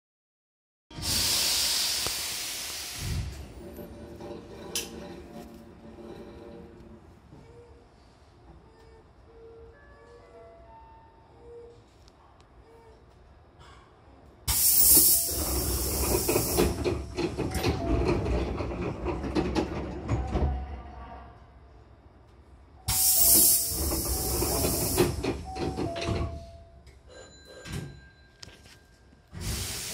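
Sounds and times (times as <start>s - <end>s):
compressed air hissing from train doors: 1.0s - 3.9s, 14.5s - 17.2s, 22.9s - 26.5s, 29.3s - 29.9s
knocks of sliding doors: 15.8s - 20.6s.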